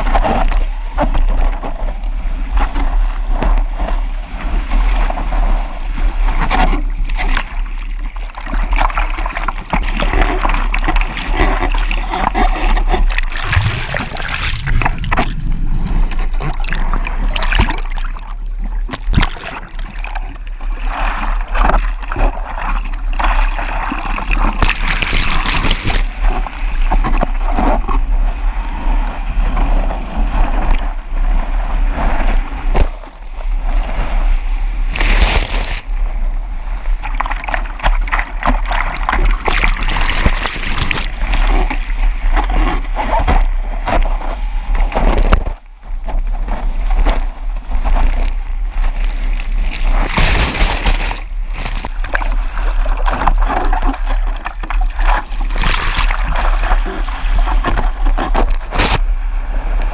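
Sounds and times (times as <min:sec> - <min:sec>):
seawater splashing and rushing: 0:00.0 - 0:59.9
wind rumble on microphone: 0:00.0 - 0:59.9
whitewater washes: 0:06.7 - 0:27.7, 0:37.1 - 0:42.6, 0:47.9 - 0:59.2.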